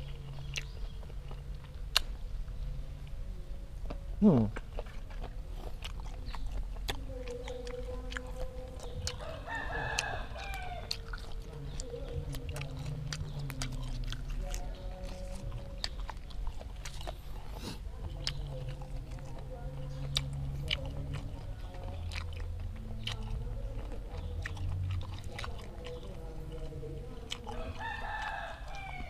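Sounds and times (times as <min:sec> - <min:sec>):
wet chewing and crunching: 0:00.0 - 0:29.0
rooster crowing: 0:09.2 - 0:11.2, 0:27.5 - 0:29.0.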